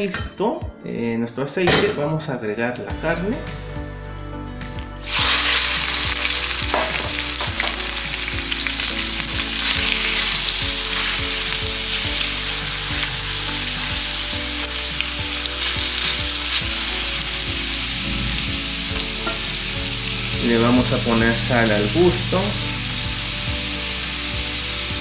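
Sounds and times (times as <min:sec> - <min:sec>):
meat sizzling in oil: 0:05.0 - 0:25.0.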